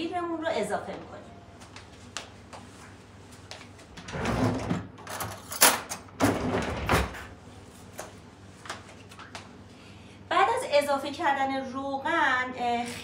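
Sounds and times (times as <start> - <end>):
drawers sliding: 4.0 - 5.6.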